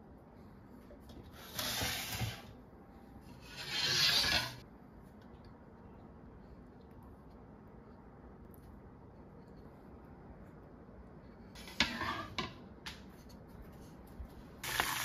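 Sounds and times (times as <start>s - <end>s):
cookware scraping across stone: 3.4s - 4.6s, 11.6s - 12.6s.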